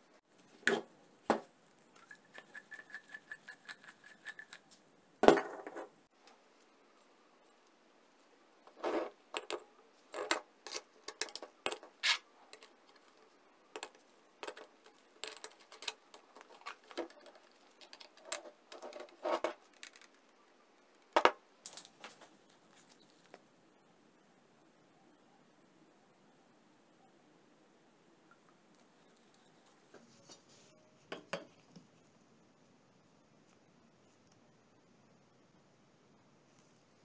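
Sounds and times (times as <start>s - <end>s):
metal parts clicking and clinking: 9.3s - 20.1s.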